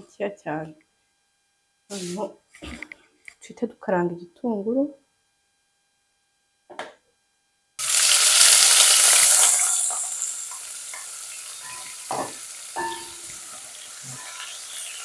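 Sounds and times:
onions sizzling in hot oil: 0:07.8 - 0:15.0.

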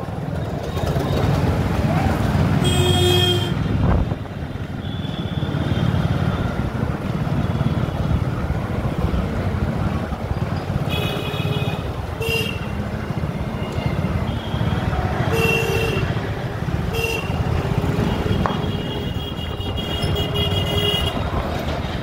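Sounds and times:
motorcycle engine rumble: 0:00.0 - 0:22.0
vehicle horn honking: 0:02.6 - 0:03.6.

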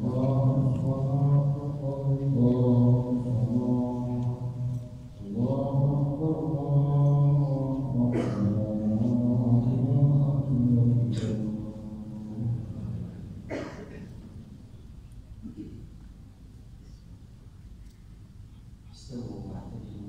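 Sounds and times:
man chanting a prayer: 0:00.0 - 0:13.5, 0:18.8 - 0:20.0.

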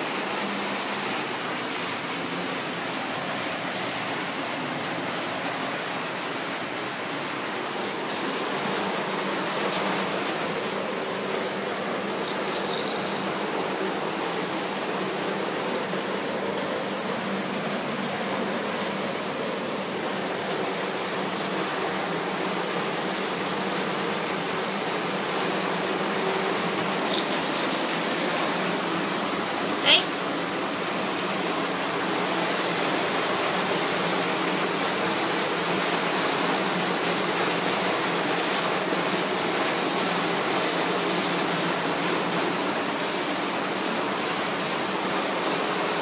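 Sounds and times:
steady hiss: 0:00.0 - 0:29.7.

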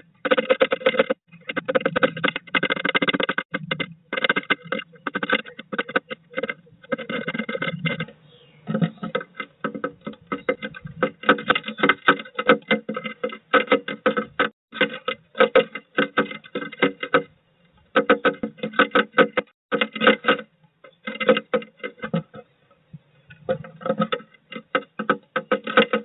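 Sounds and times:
bird pecking at wood: 0:00.0 - 0:22.5, 0:23.3 - 0:26.0.

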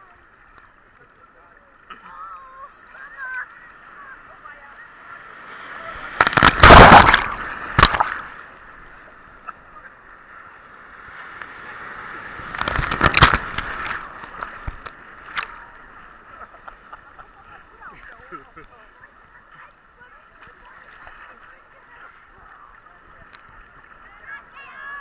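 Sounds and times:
waves breaking in surf: 0:01.3 - 0:25.0
loud water splashes: 0:04.8 - 0:08.6, 0:11.0 - 0:15.7.

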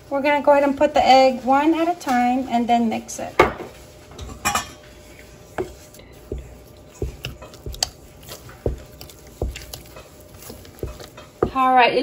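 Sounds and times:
wooden spoon squelching dough: 0:04.8 - 0:12.0.

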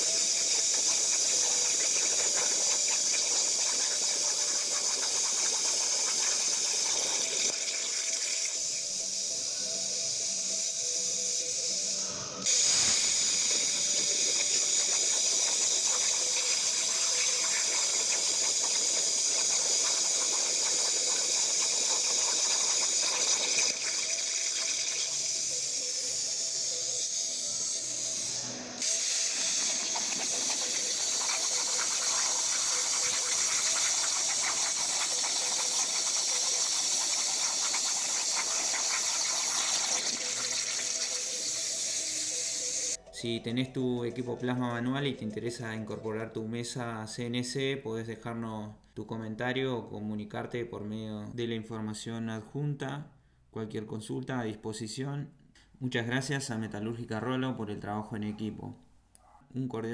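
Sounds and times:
plasma torch hissing: 0:00.0 - 0:43.0.

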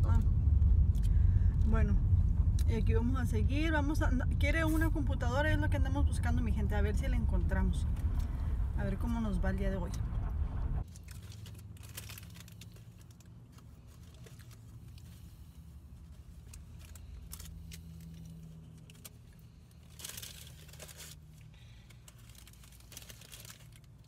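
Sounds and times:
low steady cabin hum: 0:00.0 - 0:24.0
paper wrapper crinkling: 0:10.8 - 0:15.4, 0:16.0 - 0:24.0.

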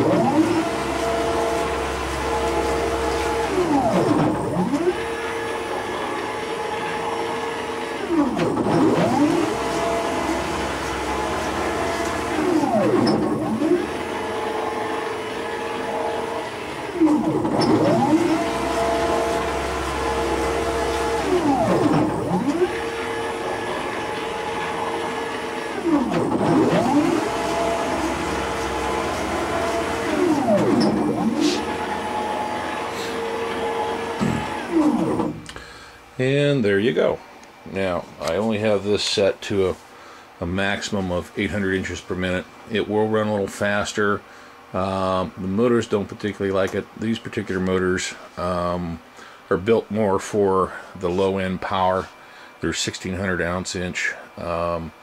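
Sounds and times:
stepper motors whining: 0:00.0 - 0:35.6.

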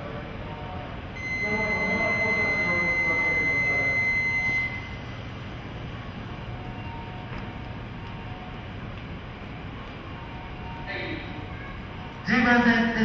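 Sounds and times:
railway platform background noise: 0:00.0 - 0:13.0
high electronic buzzer tone: 0:01.2 - 0:05.1.

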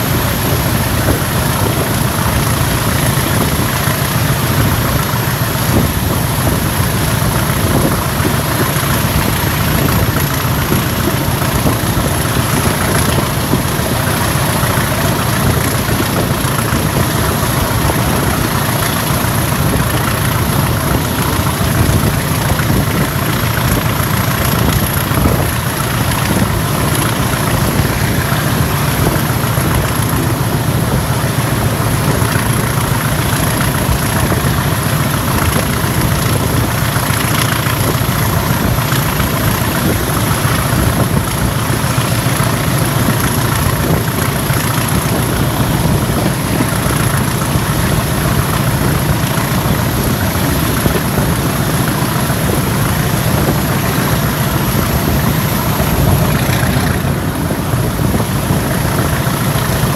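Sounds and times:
diesel locomotive engine running: 0:00.0 - 0:59.9
moving train noise: 0:00.0 - 0:59.9.

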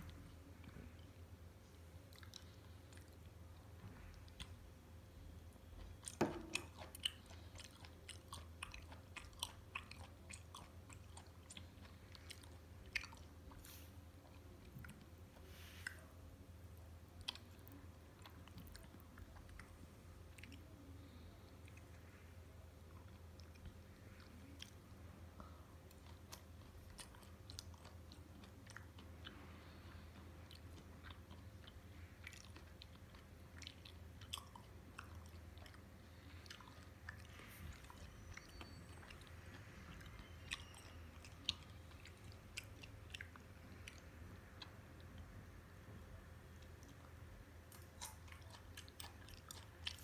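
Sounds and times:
steady low hum: 0:00.0 - 0:50.0
wet chewing mouth clicks: 0:47.7 - 0:50.0.

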